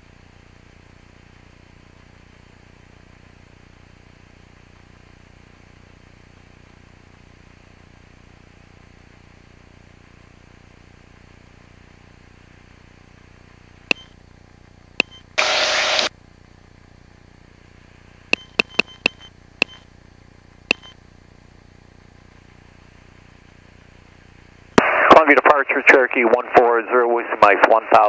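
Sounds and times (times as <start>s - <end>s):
radio clicks with short beeps: 13.9s - 14.1s, 15.0s - 16.1s, 18.3s - 19.8s, 20.7s - 21.0s
burst of radio static: 15.4s - 16.1s, 24.8s - 28.0s
intercom hiss: 15.4s - 16.1s, 24.8s - 28.0s.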